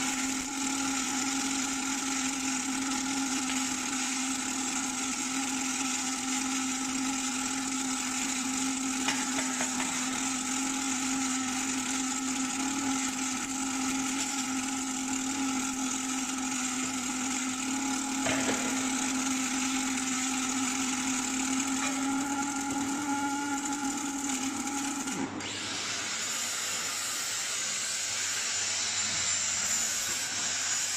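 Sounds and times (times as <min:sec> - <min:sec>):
welder hum: 0:00.0 - 0:30.9
welding arc hiss: 0:00.0 - 0:30.9.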